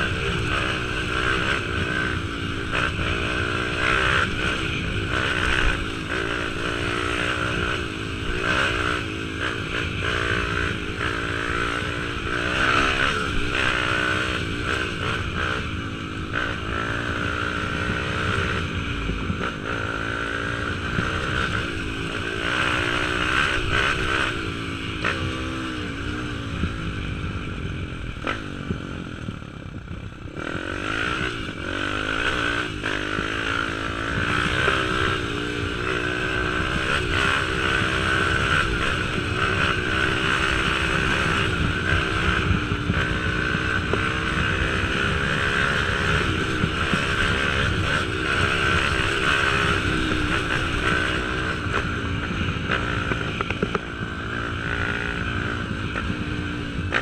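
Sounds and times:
motorbike engine revving: 0:00.0 - 0:57.0.

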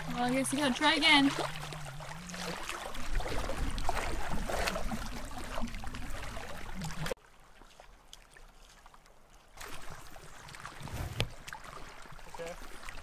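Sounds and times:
river water lapping at shore: 0:00.0 - 0:13.0.

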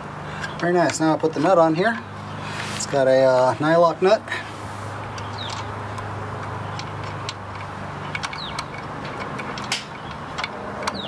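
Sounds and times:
nut being threaded by hand clicks: 0:05.1 - 0:11.0.

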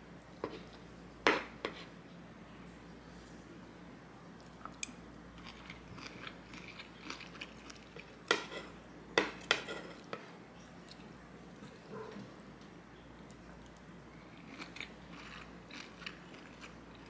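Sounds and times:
soft chewing: 0:04.2 - 0:17.0.

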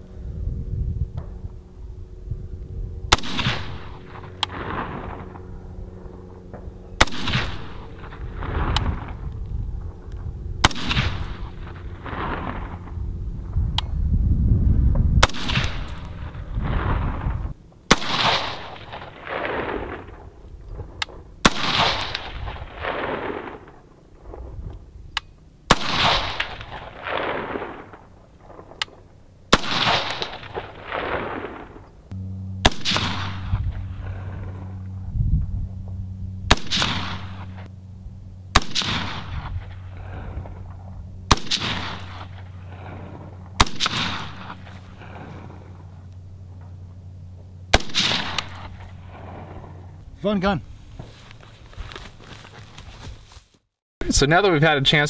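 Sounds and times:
long rolling echo: 0:00.0 - 0:24.6, 0:25.7 - 0:50.2
steady low hum: 0:00.0 - 0:53.4
rifle shots: 0:03.1 - 0:05.5, 0:07.0 - 0:09.2, 0:10.6 - 0:12.8, 0:15.2 - 0:17.2, 0:17.9 - 0:20.3, 0:21.1 - 0:23.9, 0:25.7 - 0:31.9, 0:32.6 - 0:34.7, 0:36.5 - 0:37.7, 0:38.5 - 0:40.7, 0:41.3 - 0:45.5, 0:47.7 - 0:49.8.

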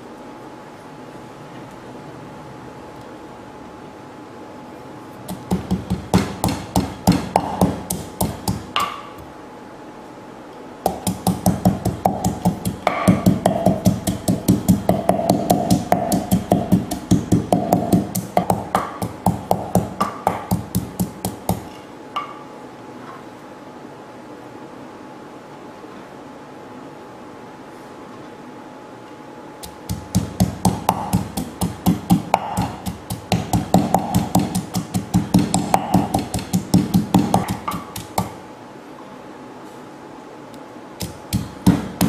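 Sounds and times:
pestle pounding in clay mortar: 0:05.3 - 0:09.2, 0:10.8 - 0:22.3, 0:29.6 - 0:38.4, 0:41.0 - 0:42.0.

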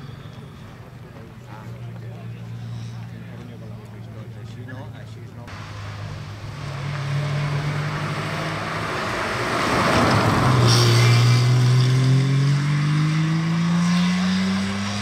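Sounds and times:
rally car engine accelerating: 0:05.5 - 0:15.0
rush of tyre and air noise: 0:05.5 - 0:15.0.

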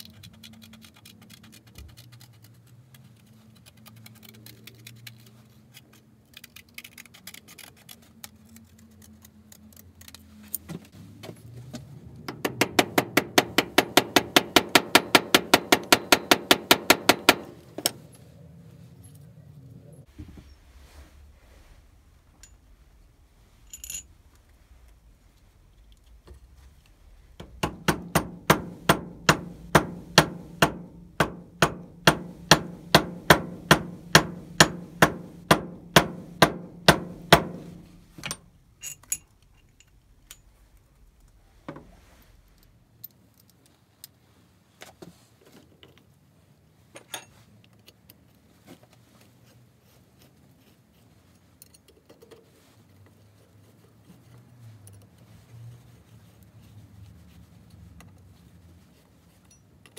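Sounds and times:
handling knocks and clicks: 0:00.0 - 0:18.3, 0:23.7 - 0:44.2
small hammer tapping: 0:12.3 - 0:18.0, 0:27.4 - 0:38.4.

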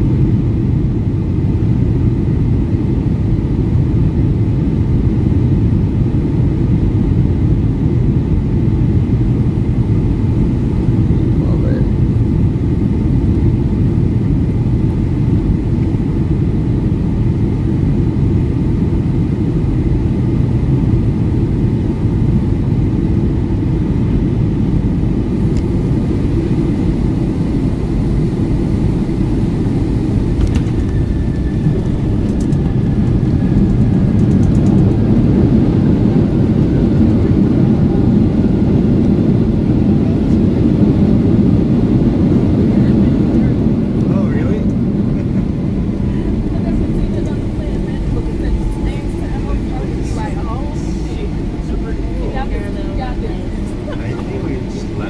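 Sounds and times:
aircraft cabin engine rumble: 0:00.0 - 0:55.0.

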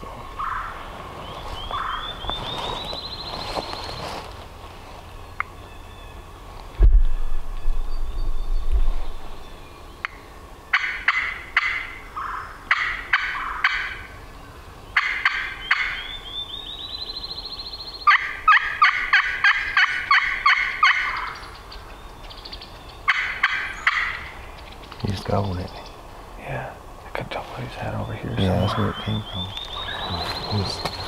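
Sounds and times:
wild turkey yelping: 0:00.4 - 0:00.9, 0:01.6 - 0:03.0, 0:10.0 - 0:14.2, 0:15.0 - 0:24.9, 0:28.2 - 0:31.0.

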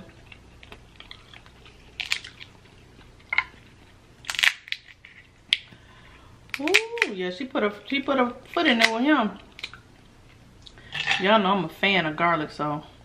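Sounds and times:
crab shells cracking: 0:00.1 - 0:05.8, 0:06.4 - 0:07.2, 0:07.8 - 0:10.4.

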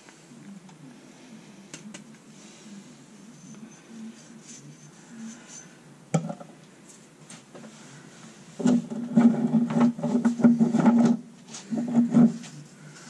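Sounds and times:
handling noise rubbing and knocking: 0:08.6 - 0:12.7.

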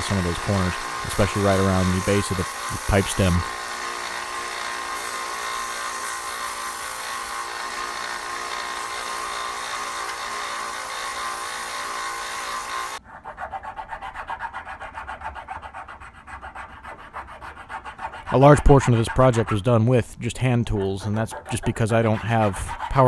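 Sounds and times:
belt sander grinding wood: 0:00.0 - 0:13.0, 0:15.2 - 0:23.0
hand file rasping wood: 0:00.0 - 0:23.0.

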